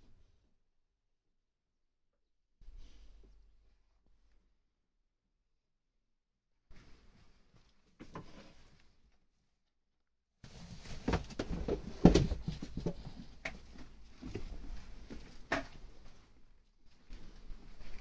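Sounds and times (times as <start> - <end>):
rustling: 10.4 - 18.0
thumps and scuffs in animal pen: 10.5 - 16.2.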